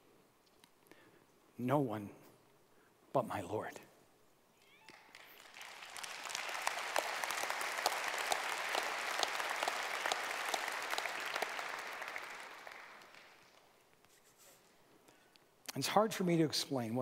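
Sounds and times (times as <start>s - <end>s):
congregation applauding: 4.6s - 13.8s.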